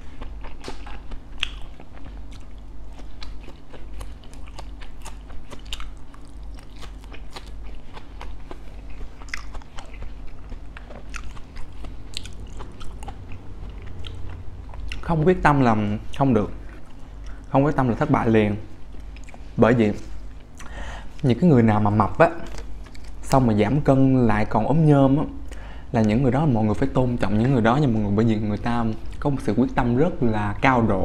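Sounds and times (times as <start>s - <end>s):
chewing crispy pancakes: 0.0s - 17.6s, 18.2s - 21.2s, 22.4s - 23.4s.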